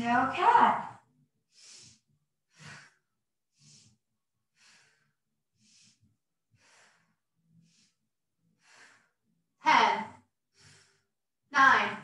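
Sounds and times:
woman breathing: 1.4s - 12.0s.

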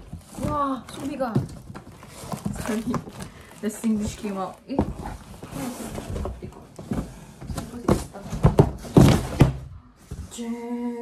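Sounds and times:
cardboard box knocks and thumps: 0.0s - 3.2s, 4.0s - 10.2s.

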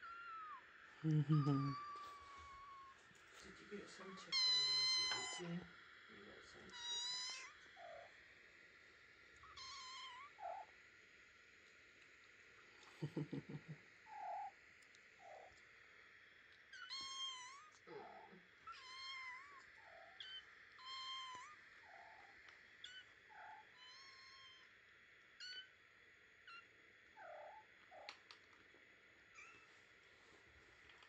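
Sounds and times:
kittens meowing: 4.3s - 5.5s, 6.7s - 8.1s, 9.4s - 10.7s.

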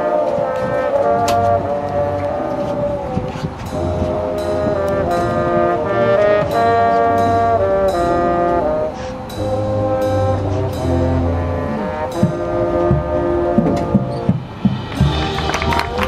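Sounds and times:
marching band playing: 0.0s - 16.0s
sharp percussion hits: 3.6s - 16.0s.

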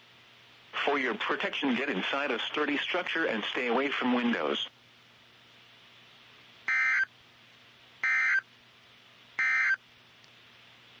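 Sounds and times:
digital data tone bursts: 6.7s - 7.1s, 8.0s - 8.4s, 9.4s - 9.8s.

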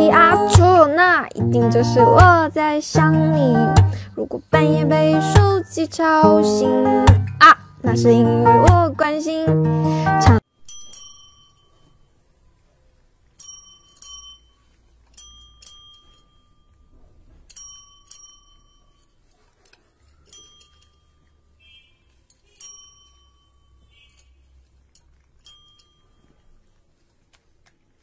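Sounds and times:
desk service bell dings: 10.6s - 12.1s, 13.4s - 14.6s, 15.2s - 19.1s, 22.5s - 24.1s.

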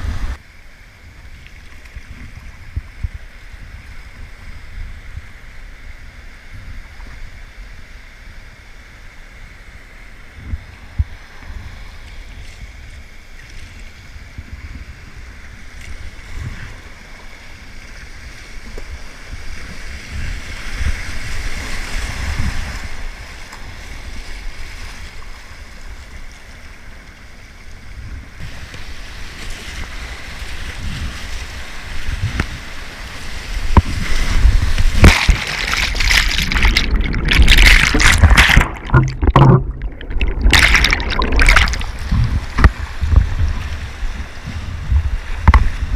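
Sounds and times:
muffled underwater water sound: 0.0s - 45.9s
whitewater rushing and splashing: 31.5s - 44.8s.

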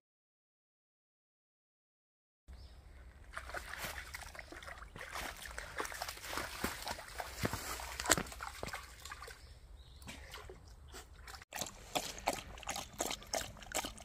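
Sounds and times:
water splashing and sloshing: 3.0s - 14.0s.

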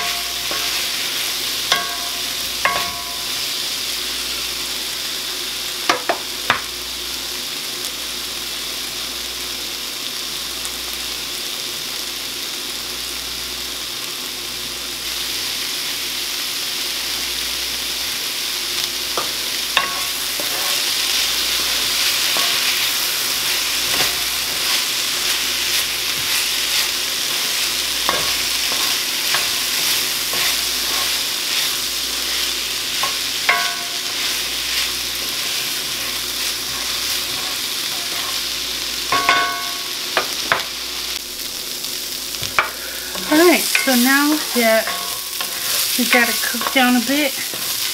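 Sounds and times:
vegetables sizzling in a skillet: 0.0s - 47.9s
wooden spoon scraping a pan: 19.2s - 38.5s, 42.6s - 47.9s.

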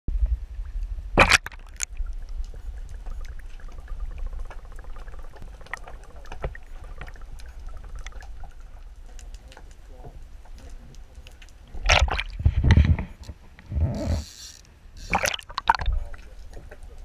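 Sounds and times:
faint clicks underwater: 0.8s - 12.2s, 15.1s - 17.0s
splash into water: 1.2s - 1.9s, 11.8s - 12.4s
muffled underwater rumble: 1.9s - 14.2s.

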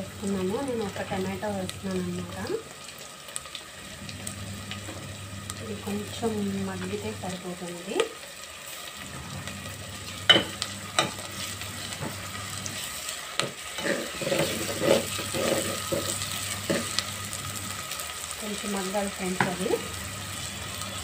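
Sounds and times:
vegetables sizzling in oil: 0.0s - 21.0s
metal spoon stirring and scraping: 10.3s - 17.0s.

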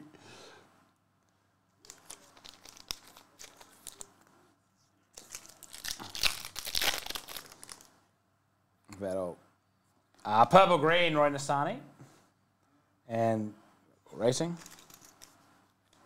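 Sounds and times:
foil wrapper crinkling: 1.8s - 4.1s, 5.2s - 7.9s, 14.6s - 15.4s
foil pack tearing open: 1.9s - 4.1s, 5.2s - 7.9s.

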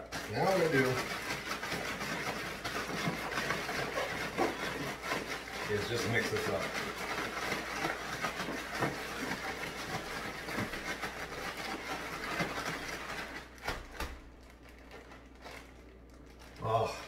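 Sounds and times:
plastic bag crinkling: 9.4s - 17.0s.

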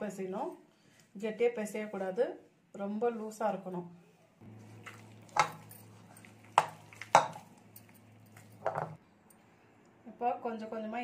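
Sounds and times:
hand mixing wet dough: 4.4s - 9.0s.

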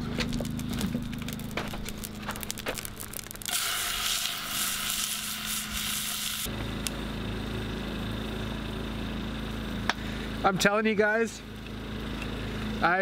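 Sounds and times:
steady low hum: 0.0s - 13.0s
steak sizzling on a grill: 1.1s - 6.5s.

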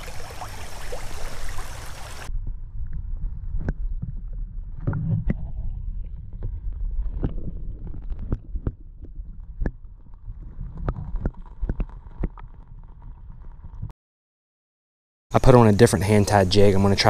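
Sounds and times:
underwater creek water rumble: 0.0s - 13.9s
underwater clicks and knocks: 4.8s - 13.9s.

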